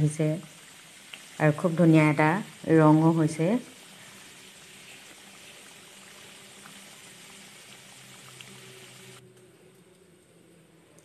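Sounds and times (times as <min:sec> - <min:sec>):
curry simmering bubbling: 0:00.4 - 0:09.2.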